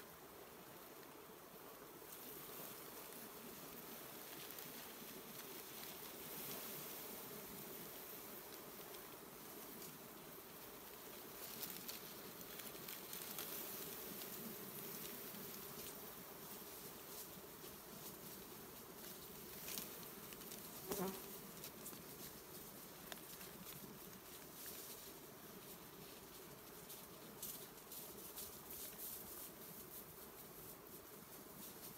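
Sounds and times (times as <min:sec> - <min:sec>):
bees buzzing: 0:00.7 - 0:21.6
dry leaves crackling: 0:08.0 - 0:31.9.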